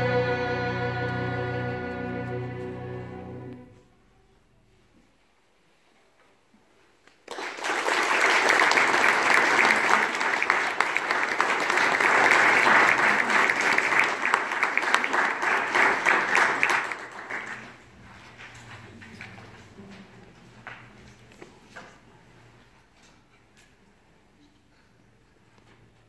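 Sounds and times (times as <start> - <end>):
audience applauding: 7.2 - 17.9.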